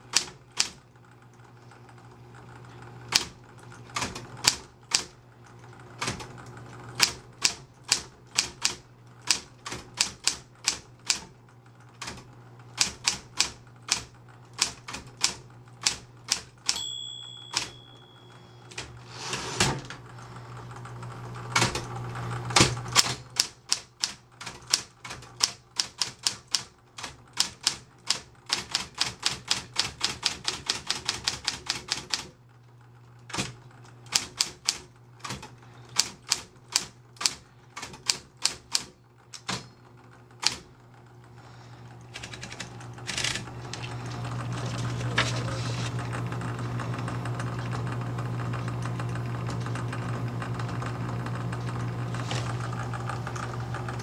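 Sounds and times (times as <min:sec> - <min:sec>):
typewriter keys striking: 0:00.0 - 0:00.8, 0:06.0 - 0:06.3, 0:07.0 - 0:11.3, 0:12.8 - 0:17.9, 0:22.5 - 0:32.3, 0:33.3 - 0:39.7, 0:42.2 - 0:43.9
typewriter motor hum: 0:00.0 - 0:54.0
carriage return whir and clunk: 0:02.6 - 0:08.0, 0:14.6 - 0:20.2, 0:20.8 - 0:23.4
typewriter margin bell: 0:16.7 - 0:18.8.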